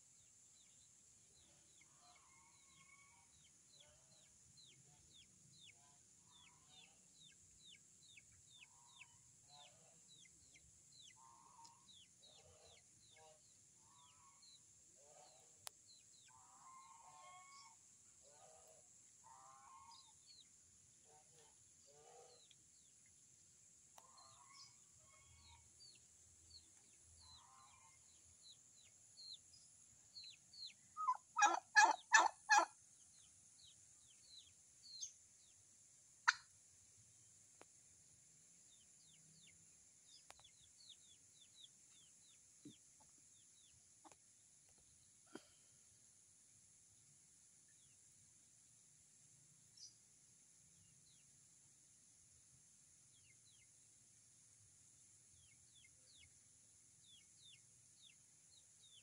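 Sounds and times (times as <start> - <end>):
turkey gobbling: 31.0 - 32.7.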